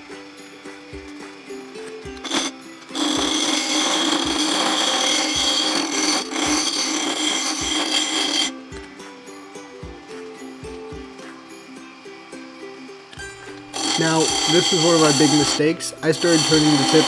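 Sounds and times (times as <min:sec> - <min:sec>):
background music with beat: 0:00.0 - 0:03.4, 0:08.5 - 0:16.1
lathe tool scraping wood: 0:02.2 - 0:08.7, 0:13.4 - 0:17.0.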